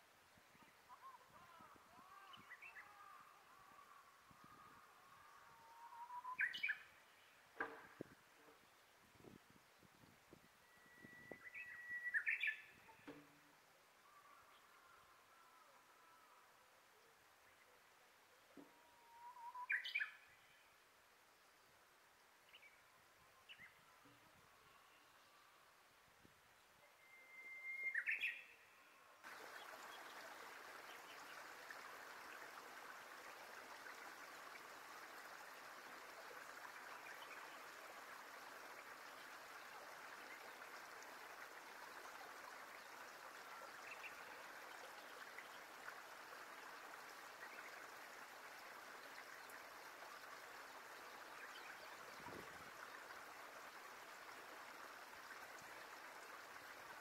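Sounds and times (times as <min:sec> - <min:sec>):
faint hiss: 0:00.0 - 0:57.0
soft bird chirps: 0:00.4 - 0:07.8, 0:09.8 - 0:13.4, 0:26.8 - 0:31.8
whistled bird call: 0:05.6 - 0:06.9, 0:10.6 - 0:13.1, 0:19.1 - 0:20.2, 0:26.8 - 0:28.8.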